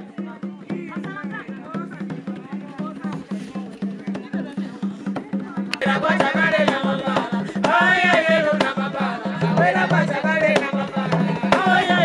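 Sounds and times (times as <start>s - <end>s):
drums beating fast rhythm: 0.0s - 12.0s
woman singing: 5.8s - 12.0s.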